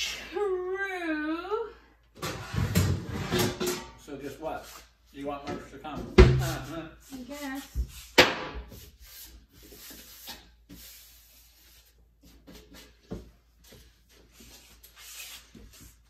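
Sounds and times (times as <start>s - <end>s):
paper rubbing and rustling: 14.2s - 16.0s.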